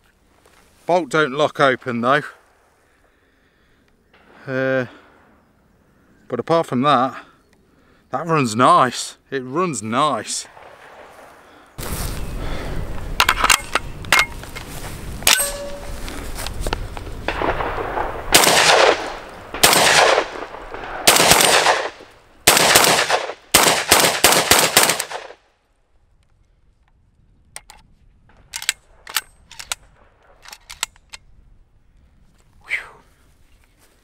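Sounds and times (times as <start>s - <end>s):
shotgun shots: 17.3s - 25.4s.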